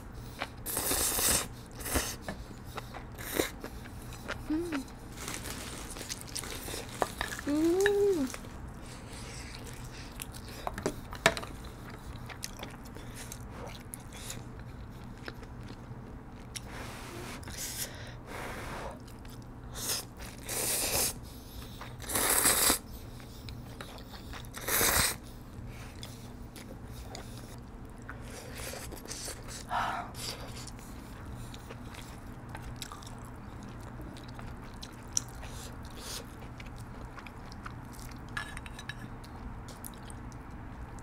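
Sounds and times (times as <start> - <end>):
wet chewing: 0.2 - 16.7, 21.4 - 41.0
loud noodle slurps: 0.7 - 2.1, 22.0 - 22.8, 24.6 - 25.2.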